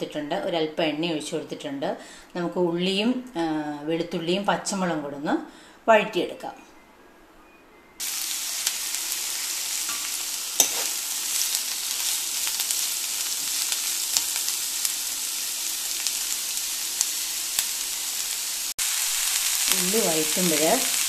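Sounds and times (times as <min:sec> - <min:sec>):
vegetables sizzling in hot oil: 0:08.0 - 0:21.0
metal spoon scraping a pan: 0:09.8 - 0:12.8.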